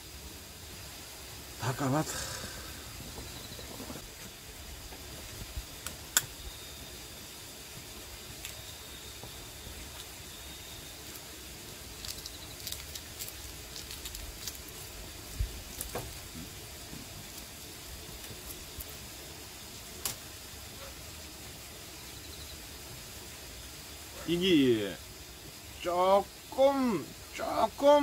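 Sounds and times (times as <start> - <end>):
steady background hiss: 0.0 - 28.0
egg shell cracking while peeled: 11.9 - 16.3.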